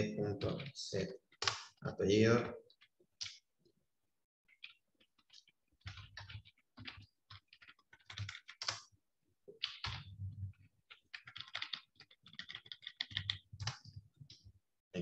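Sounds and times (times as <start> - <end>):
typing on computer keyboard: 0.3 - 1.8, 4.5 - 14.4.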